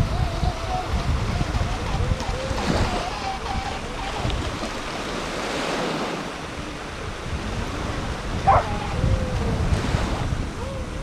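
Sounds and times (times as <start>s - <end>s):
small waves lapping on shore: 0.0s - 11.0s
wind buffeting microphone: 0.0s - 11.0s
dog barking: 8.4s - 8.8s.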